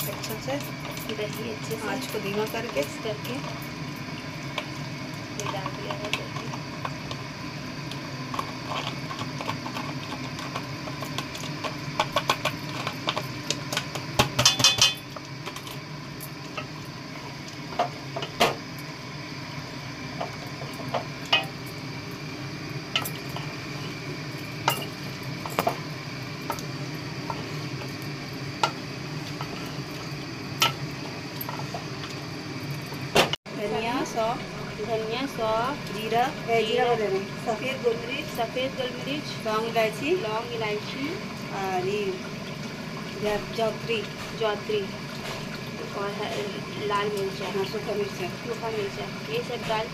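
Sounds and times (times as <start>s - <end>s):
steady low hum: 0.0s - 49.9s
spoon clinking and scraping pot: 14.4s - 15.1s.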